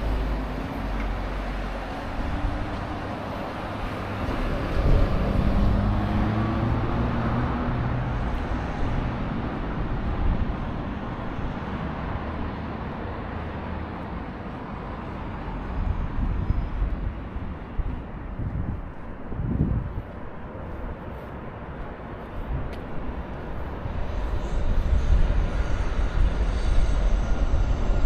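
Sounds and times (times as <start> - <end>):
vehicle engine passing by: 0.0 - 13.9
traffic noise: 0.0 - 28.0.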